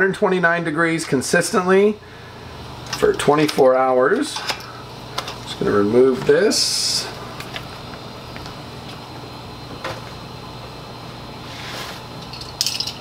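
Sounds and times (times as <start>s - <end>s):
motor hum: 1.9s - 12.3s.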